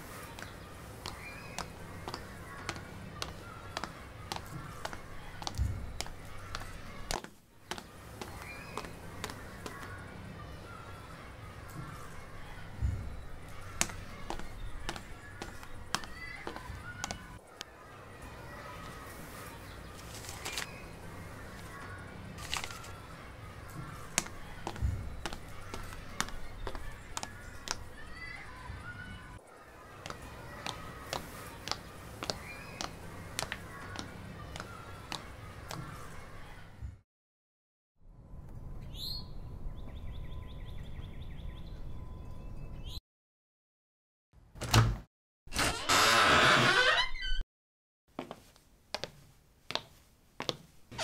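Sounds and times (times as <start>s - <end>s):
bird chirping: 38.8s - 43.0s.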